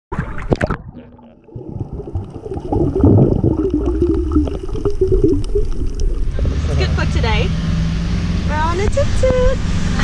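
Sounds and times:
camera splashing water: 0.1s - 0.9s, 1.9s - 6.6s
muffled underwater rumble: 0.1s - 7.4s
wavering drone: 3.9s - 10.0s.

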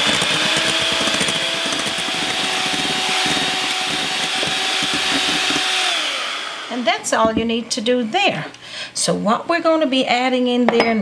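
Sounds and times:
electric hand mixer whipping eggs: 0.0s - 7.1s.

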